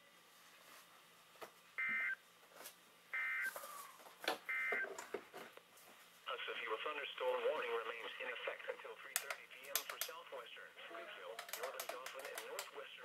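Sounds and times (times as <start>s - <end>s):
sharp clicks: 9.2s - 10.2s.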